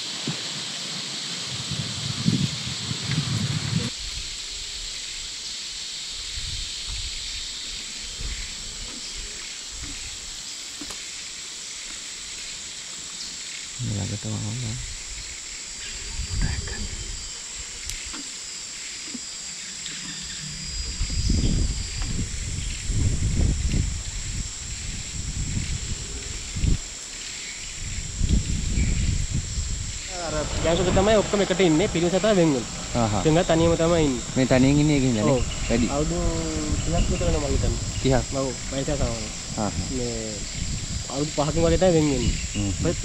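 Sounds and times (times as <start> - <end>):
steady high hiss: 0.0 - 43.0
low-pitched rumbles: 27.7 - 43.0.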